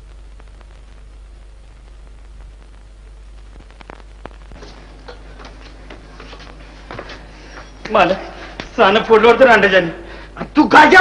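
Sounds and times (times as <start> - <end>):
faint clicks and crackle: 0.0 - 6.6
steady low hum: 0.0 - 10.6
film soundtrack hiss: 0.0 - 11.0.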